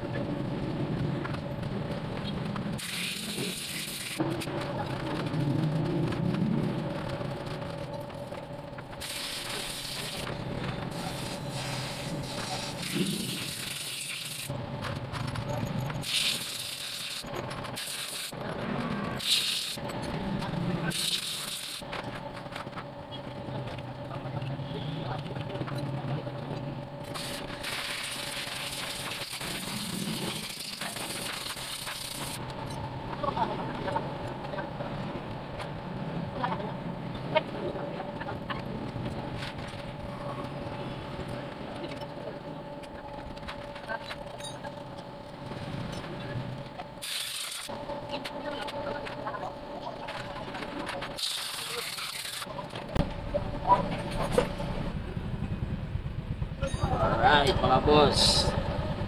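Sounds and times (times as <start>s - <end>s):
vehicle engine rumble: 0.0s - 9.0s, 52.5s - 59.0s.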